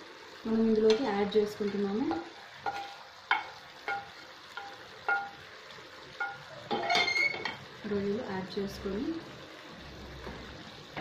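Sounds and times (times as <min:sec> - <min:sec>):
spatula scraping frying pan: 0:00.8 - 0:05.5, 0:06.2 - 0:07.7.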